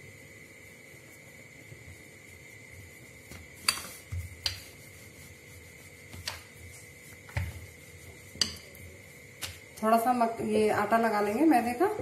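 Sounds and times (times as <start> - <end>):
hands rubbing dough: 0.4 - 11.9
dough tapping on stone countertop: 3.2 - 4.8, 6.0 - 9.7.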